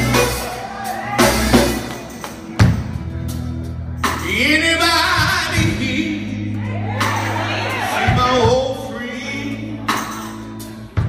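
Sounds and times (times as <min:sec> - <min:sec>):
bass tones: 0:00.0 - 0:11.0.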